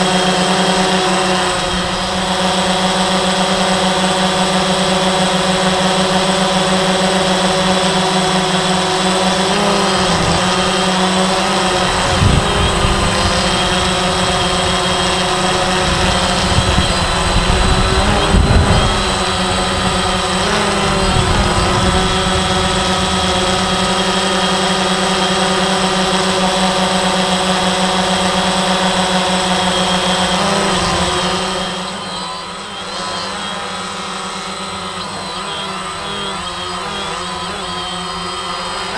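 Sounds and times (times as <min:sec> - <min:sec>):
drone propellers droning: 0:00.0 - 0:38.9
wind buffeting microphone: 0:09.9 - 0:26.1.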